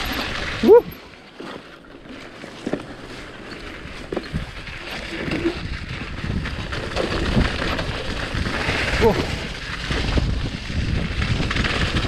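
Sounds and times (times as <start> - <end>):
bike knocking and rattling: 0.0 - 12.0
bike tyres rushing over dirt: 0.0 - 12.0
wind on microphone: 3.8 - 12.0.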